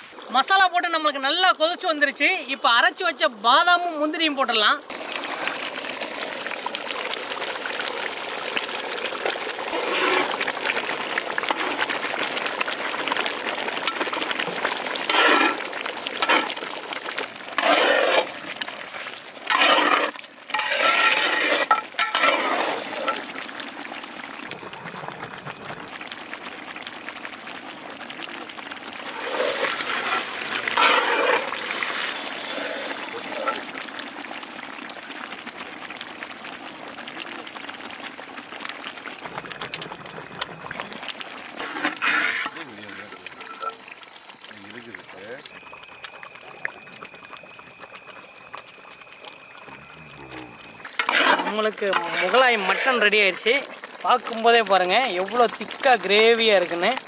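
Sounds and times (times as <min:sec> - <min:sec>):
curry boiling in pot: 0:00.0 - 0:57.0
ladle scraping and clinking pot: 0:15.0 - 0:16.6, 0:17.5 - 0:18.6, 0:19.4 - 0:23.3, 0:29.1 - 0:31.6, 0:41.5 - 0:43.8, 0:50.9 - 0:53.2.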